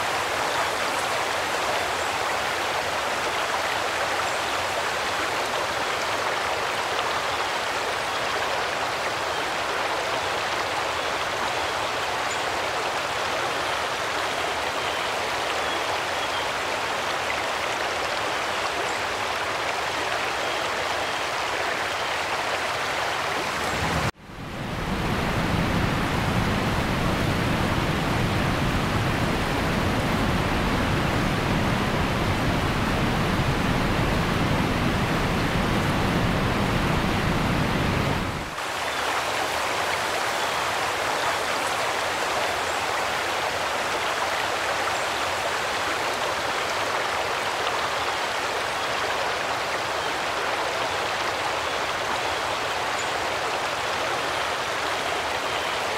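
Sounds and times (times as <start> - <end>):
heavy rain pouring: 21.4 - 55.9.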